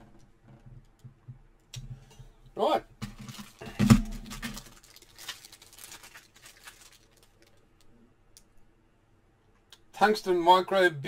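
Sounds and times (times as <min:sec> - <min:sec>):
plastic packaging crinkling: 0:03.0 - 0:07.9.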